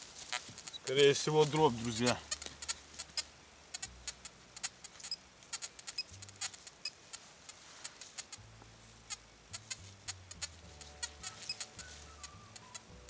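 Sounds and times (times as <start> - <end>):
digging through dry soil: 0.0 - 2.8.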